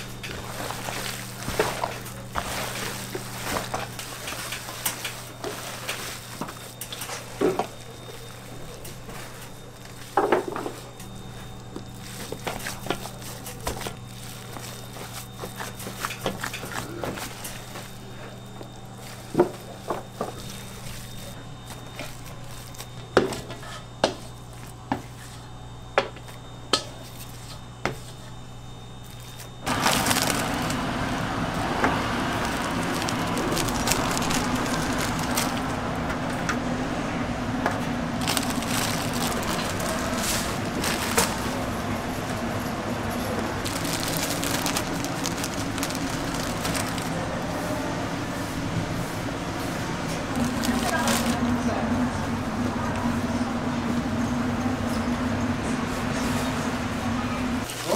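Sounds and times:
hands squishing filling in bowl: 0.0 - 10.2, 11.2 - 18.1, 31.9 - 35.7, 38.2 - 41.7, 43.5 - 47.2.

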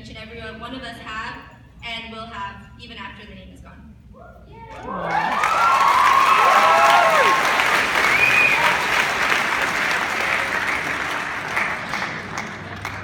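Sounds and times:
crowd cheering and shouting: 4.7 - 9.0
audience applauding: 4.8 - 13.0.

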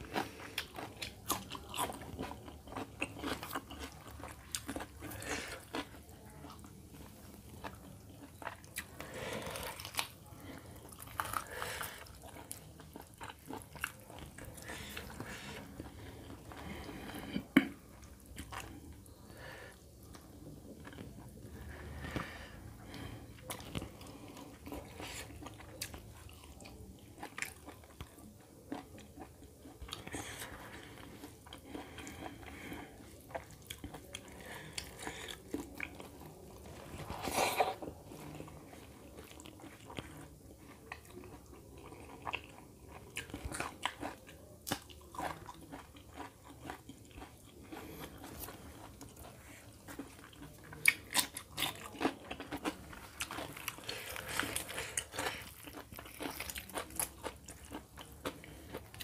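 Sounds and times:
person chewing food: 0.0 - 59.0.

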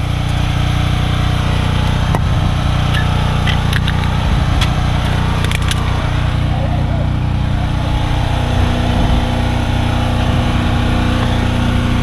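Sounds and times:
small motor droning: 0.0 - 12.0.

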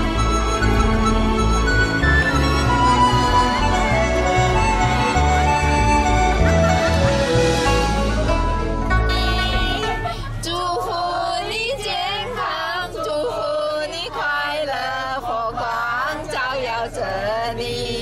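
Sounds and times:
faint instrumental backing: 0.0 - 10.5
woman singing with vibrato: 9.1 - 18.0.

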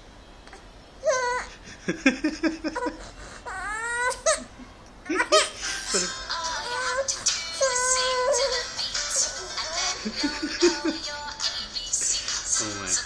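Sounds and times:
baby crying: 1.0 - 1.5, 3.4 - 4.5, 5.1 - 10.1.

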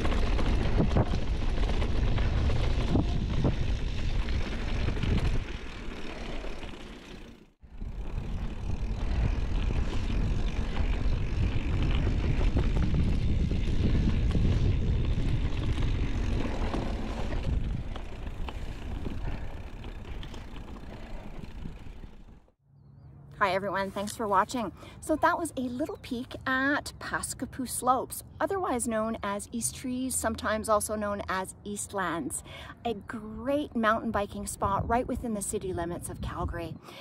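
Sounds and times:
wind rumbling on microphone: 0.0 - 6.5, 7.6 - 22.5, 33.3 - 36.9
bike clicks and rattles: 0.0 - 22.5
bike tyre noise: 0.0 - 22.5.

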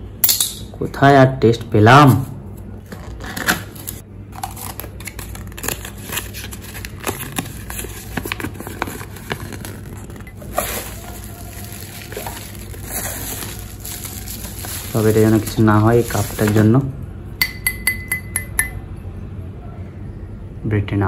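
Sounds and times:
bubble wrap rustles and clicks: 3.3 - 16.8
cardboard box rustling: 5.0 - 16.7.

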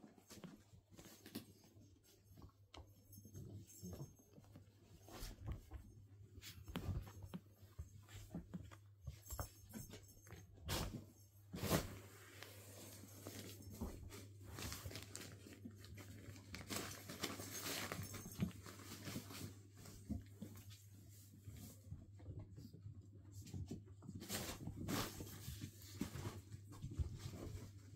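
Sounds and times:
puppy paws scrabbling: 0.0 - 11.2
fabric rustling and crinkling: 3.7 - 21.2.

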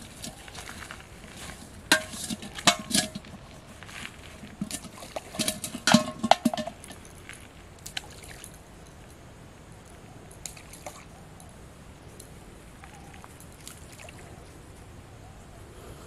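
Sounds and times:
metal pot clinking and knocking: 1.8 - 3.4, 4.6 - 7.0.

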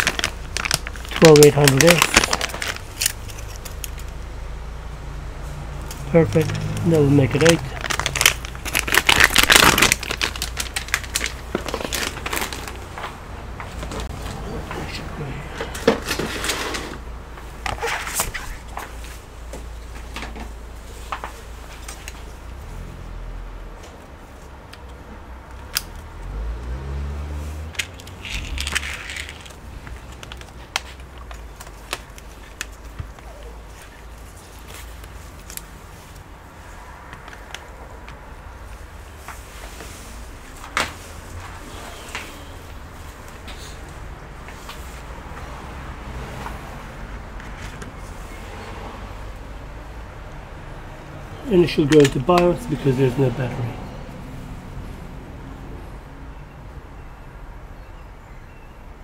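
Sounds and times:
plastic bags crinkling: 0.0 - 4.2, 6.0 - 13.0, 27.8 - 36.2.

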